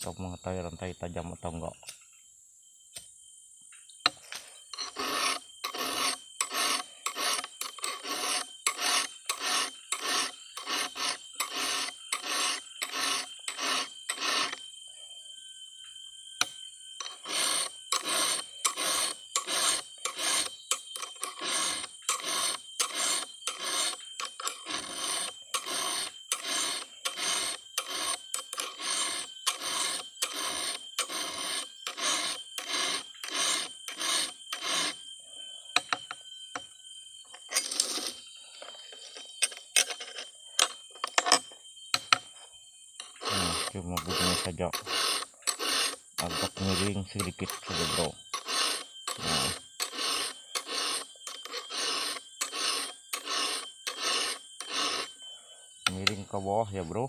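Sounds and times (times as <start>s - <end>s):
file rasping on chainsaw chain: 4.7s - 14.7s, 16.4s - 35.1s, 37.3s - 41.4s, 43.0s - 55.3s, 55.9s - 57.0s.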